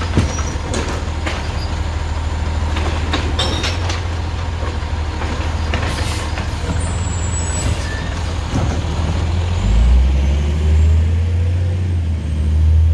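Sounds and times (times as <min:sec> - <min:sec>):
hydraulic arm knocks and clatters: 0:00.0 - 0:01.8, 0:02.5 - 0:07.0, 0:08.4 - 0:09.2
garbage truck diesel engine: 0:00.0 - 0:12.9.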